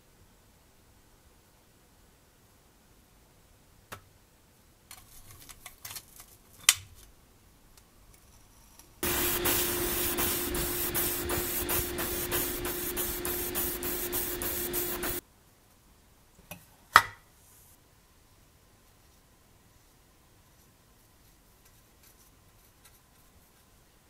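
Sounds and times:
airbrush spraying hiss: 9.0s - 15.2s
steady hum: 9.0s - 15.2s.

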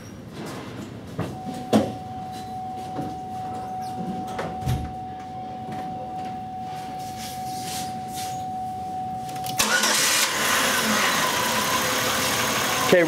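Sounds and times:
thin high tone: 2.0s - 9.6s
car engine starting and running: 9.5s - 13.0s.

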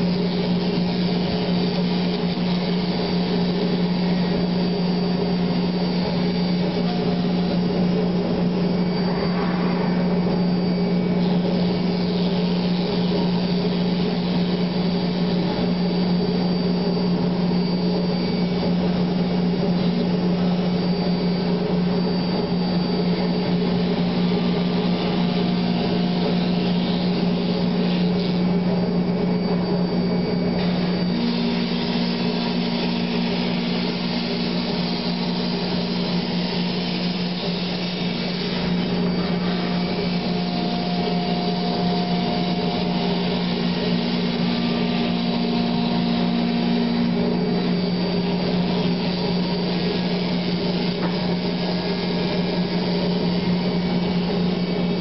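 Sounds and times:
faint high whine: 0.0s - 55.0s
router machine hum: 0.0s - 55.0s.

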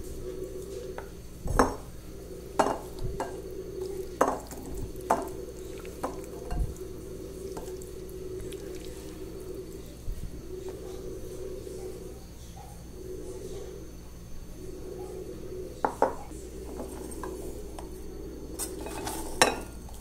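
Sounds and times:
steady low hum: 0.0s - 20.0s
spoon knocking and scraping bowl: 2.6s - 3.4s, 4.2s - 5.4s, 18.6s - 19.7s.

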